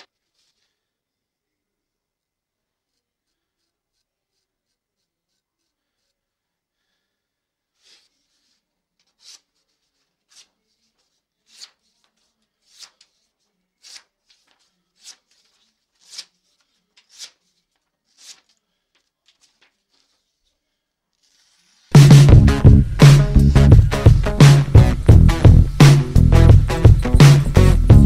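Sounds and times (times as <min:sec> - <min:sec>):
knife slicing paper: 0:07.8 - 0:20.5.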